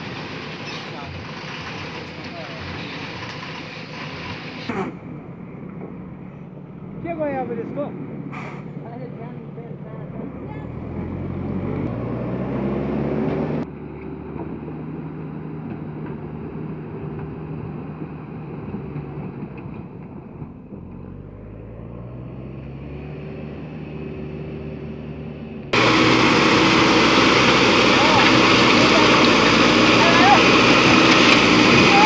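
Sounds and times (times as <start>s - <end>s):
backhoe loader engine: 0.0s - 32.0s
dump truck diesel engine: 0.0s - 32.0s
loud rough rushing noise: 25.7s - 32.0s.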